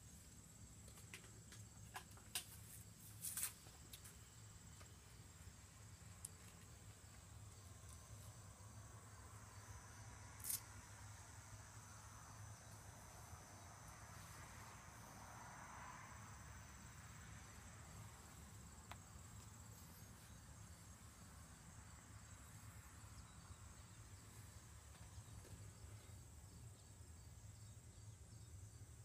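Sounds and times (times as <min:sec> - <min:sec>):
insect chirring: 0:05.9 - 0:13.8.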